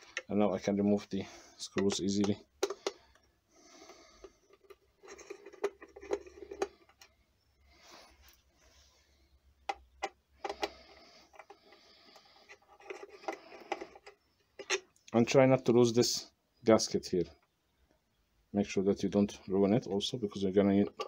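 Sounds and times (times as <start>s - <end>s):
screwdriver scraping: 4.5s - 7.0s, 10.0s - 14.8s.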